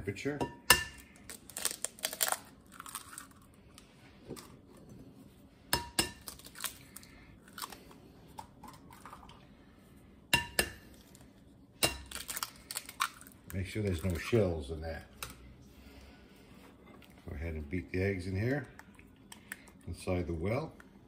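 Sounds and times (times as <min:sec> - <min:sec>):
eggshell clicks and crackles: 0:01.0 - 0:03.9, 0:12.0 - 0:14.2.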